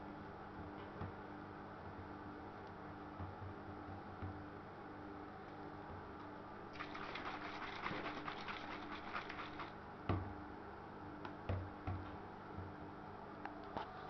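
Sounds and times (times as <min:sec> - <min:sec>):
water pouring: 0:06.8 - 0:09.7.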